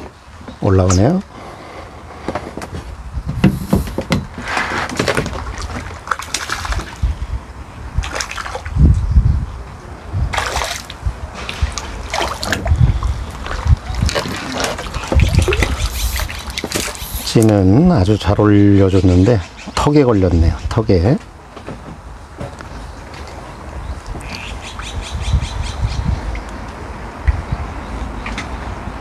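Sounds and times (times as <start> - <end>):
fish splashing at water surface: 4.8 - 7.1, 8.0 - 8.8, 10.3 - 17.3.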